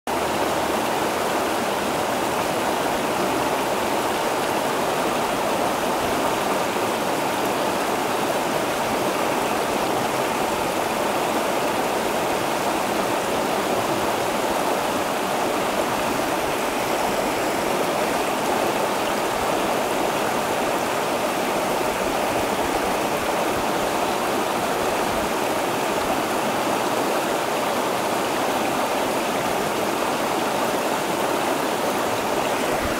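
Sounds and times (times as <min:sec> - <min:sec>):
creek water rushing over rocks: 0:00.1 - 0:32.9.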